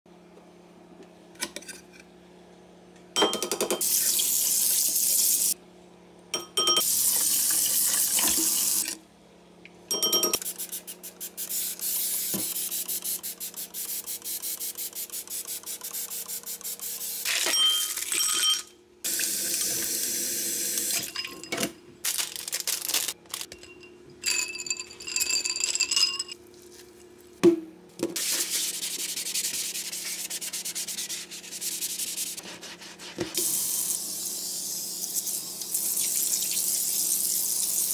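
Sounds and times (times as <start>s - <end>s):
sponge scrubbing steel: 28.2s - 33.5s.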